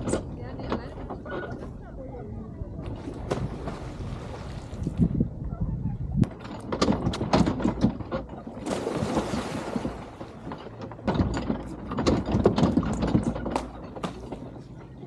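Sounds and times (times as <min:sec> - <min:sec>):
running footsteps on wooden dock: 0:06.2 - 0:15.0.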